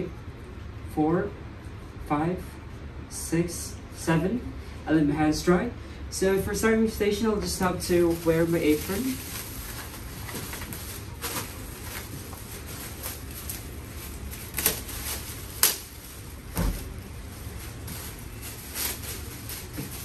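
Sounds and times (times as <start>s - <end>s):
plastic apron rustling: 7.1s - 20.0s
sharp plastic crackles: 8.1s - 20.0s.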